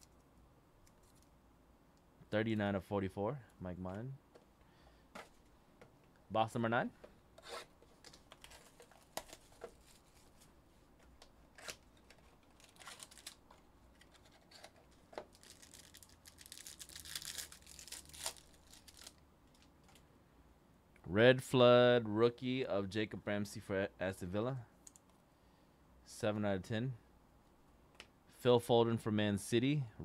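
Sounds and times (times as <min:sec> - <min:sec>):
packaging rustling: 0:07.8 - 0:10.5, 0:11.5 - 0:20.0
packaging tearing and crinkling: 0:11.6 - 0:19.7.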